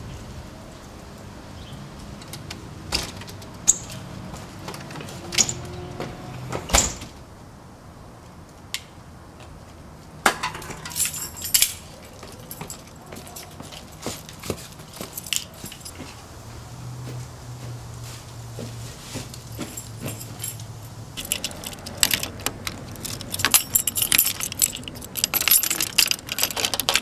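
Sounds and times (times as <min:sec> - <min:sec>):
small clicks and clinks: 0:10.4 - 0:16.0, 0:19.3 - 0:27.0
sharp clicks and knocks: 0:21.2 - 0:27.0.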